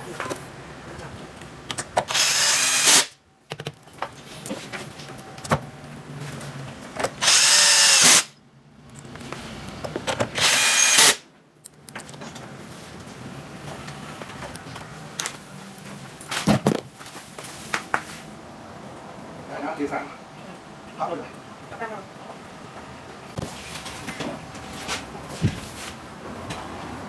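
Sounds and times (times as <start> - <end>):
cordless drill whine: 2.1 - 3.1, 7.2 - 8.3, 10.4 - 11.2.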